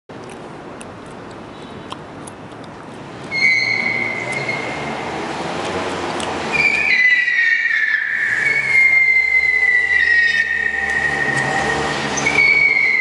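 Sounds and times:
car tyres squealing: 3.1s - 13.0s.

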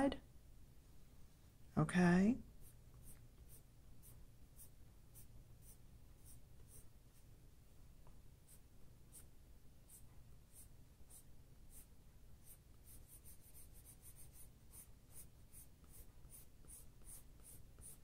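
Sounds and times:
pencil scratching on paper: 2.6s - 7.3s, 8.4s - 18.0s.

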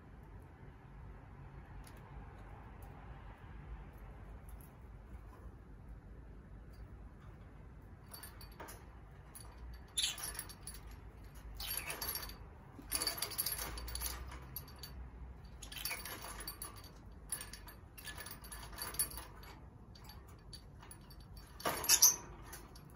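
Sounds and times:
beaded swing rattling against cage bars: 3.8s - 22.9s.

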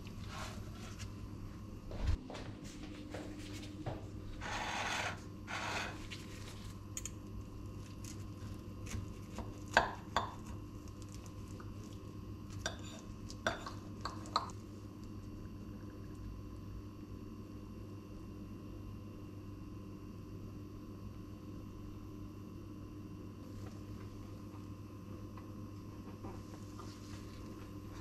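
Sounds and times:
low steady hum: 0.0s - 28.0s
knife scraping on plate: 4.4s - 6.1s.

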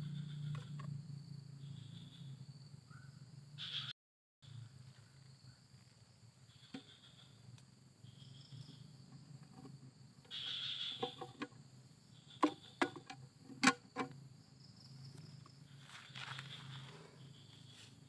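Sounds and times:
faint insects chirping: 0.0s - 18.0s
plastic lid clicks and knocks: 11.0s - 11.6s, 12.4s - 14.1s.

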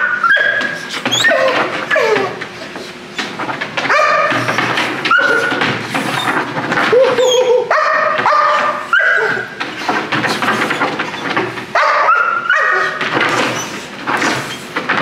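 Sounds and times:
puppy barking: 0.0s - 2.4s, 3.9s - 4.5s, 5.1s - 5.6s, 7.2s - 9.5s, 11.7s - 13.0s
puppy whining: 0.0s - 2.6s, 3.9s - 5.6s, 6.9s - 9.6s.

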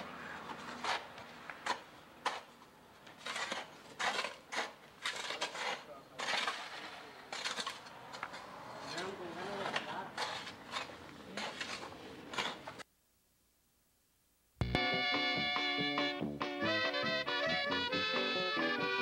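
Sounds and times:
shovels scraping snow and ice: 0.0s - 12.8s.

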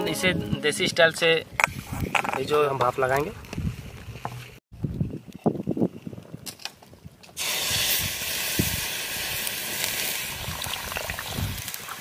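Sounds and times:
water hissing into steam: 7.4s - 12.0s.

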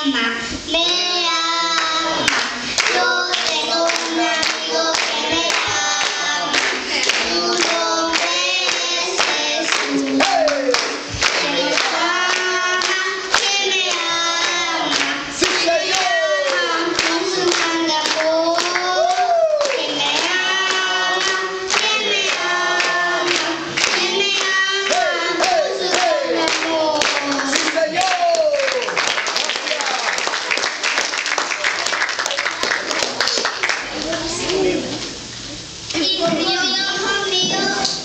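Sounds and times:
children singing: 0.7s - 27.6s
hand claps: 2.3s - 33.9s.

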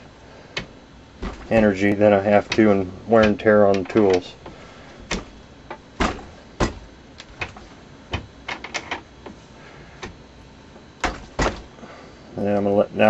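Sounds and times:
metal clicks and knocks: 0.6s - 9.4s.

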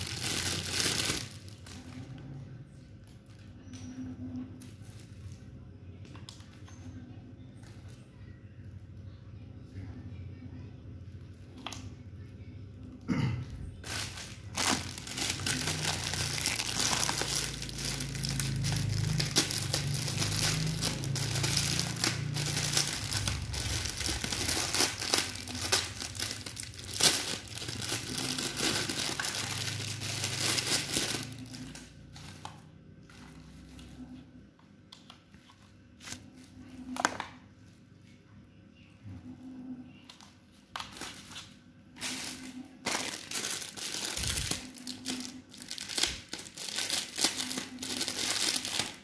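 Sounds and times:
plastic packaging crinkling: 0.0s - 2.2s, 13.8s - 34.0s, 40.6s - 49.0s.

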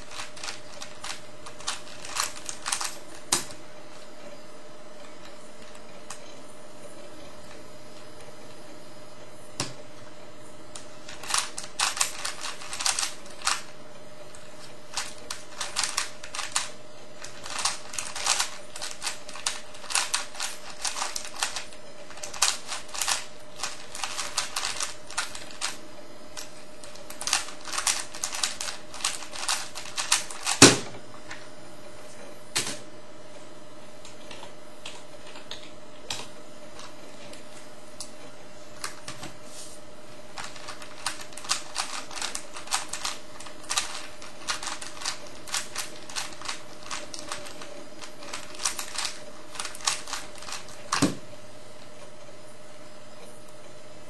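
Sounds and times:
puzzle cube plastic clicks: 0.0s - 3.6s, 10.8s - 13.7s, 14.9s - 25.8s, 40.4s - 51.2s.

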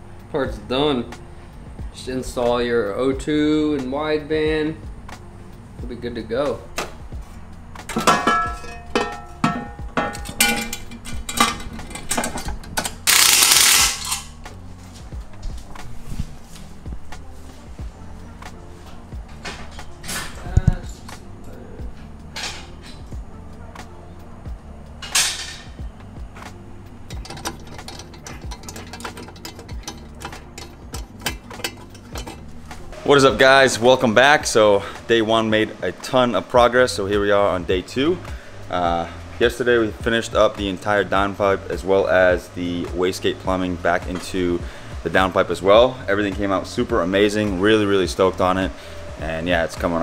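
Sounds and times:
low thumping beat: 1.1s - 2.0s, 3.8s - 12.8s, 14.4s - 25.0s, 25.7s - 35.1s, 36.6s - 50.0s
metal parts clinking: 7.9s - 14.4s, 25.0s - 25.8s, 27.1s - 33.0s
ratchet clicking: 10.2s - 14.4s, 27.1s - 32.9s
quick clicking percussion: 12.8s - 14.3s.

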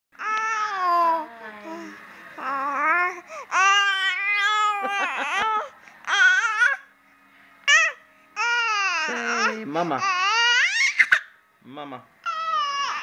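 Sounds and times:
baby babbling: 0.2s - 4.8s, 5.6s - 6.8s, 7.7s - 11.2s, 12.2s - 13.0s.

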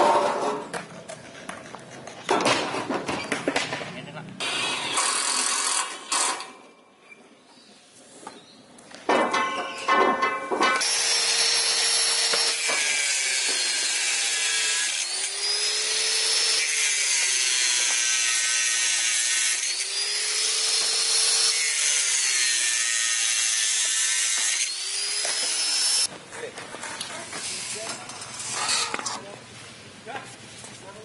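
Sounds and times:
angle grinder cutting steel: 4.4s - 6.5s, 10.8s - 26.1s.

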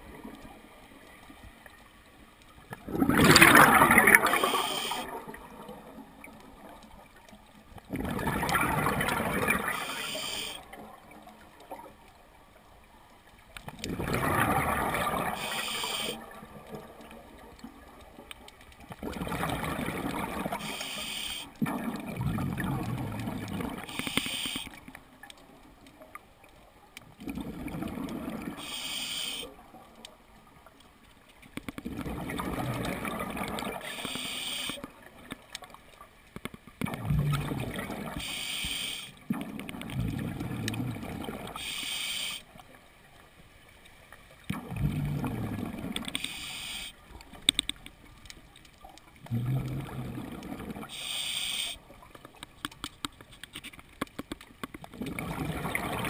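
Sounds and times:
gurgling bubbles underwater: 2.6s - 12.8s, 13.6s - 25.8s, 27.0s - 29.9s, 31.7s - 35.8s, 36.6s - 41.8s, 44.4s - 52.3s, 54.8s - 56.0s
regulator air hiss: 4.4s - 5.0s, 9.8s - 10.6s, 15.4s - 16.2s, 20.6s - 21.6s, 23.9s - 24.7s, 28.6s - 29.5s, 33.8s - 34.8s, 38.2s - 39.1s, 41.6s - 42.5s, 46.2s - 47.0s, 50.9s - 51.8s.

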